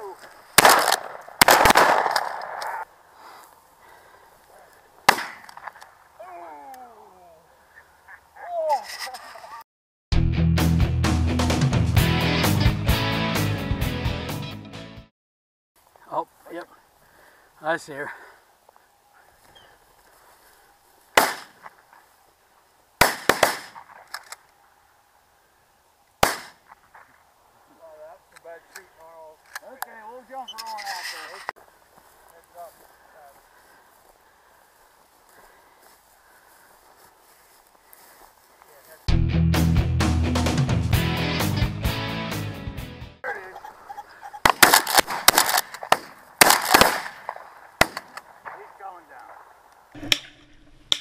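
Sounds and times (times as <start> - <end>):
shotgun shots with echo: 0.6 - 2.7, 5.1 - 5.5, 21.2 - 21.6, 23.0 - 24.0, 26.2 - 26.6, 44.4 - 48.7.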